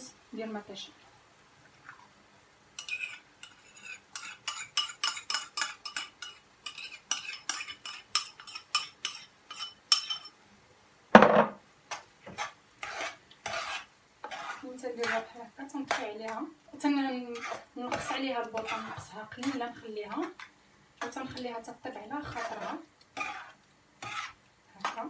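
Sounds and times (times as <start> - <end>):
stirring in a pan: 1.6 - 10.4, 11.8 - 25.0
metal spoon scraping ceramic bowl: 2.8 - 10.3, 12.3 - 15.3, 17.3 - 19.7, 22.2 - 25.0
bowl knocking down on surface: 11.2 - 11.6.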